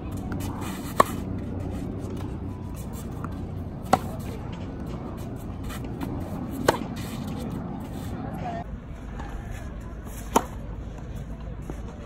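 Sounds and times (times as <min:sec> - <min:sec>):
tennis ball struck by racket: 0:00.1 - 0:07.7, 0:10.2 - 0:10.6.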